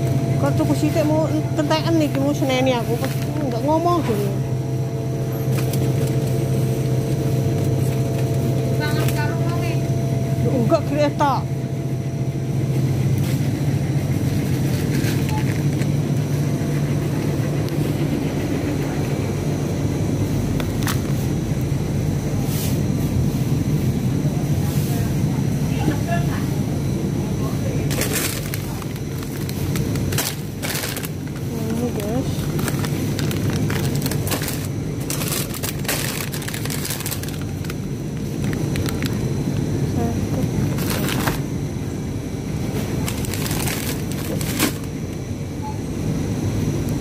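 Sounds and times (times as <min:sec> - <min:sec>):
freezer cases humming: 0:00.0 - 0:47.0
plastic packaging crinkling: 0:27.9 - 0:39.6, 0:40.6 - 0:41.5, 0:42.8 - 0:45.0.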